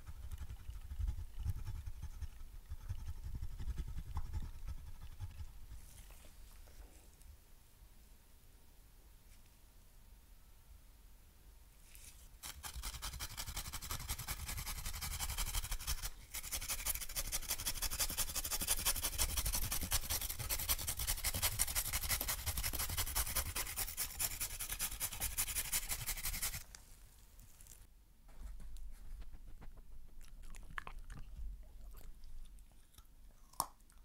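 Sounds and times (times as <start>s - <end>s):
sweet potato grating on grater: 12.4s - 26.6s.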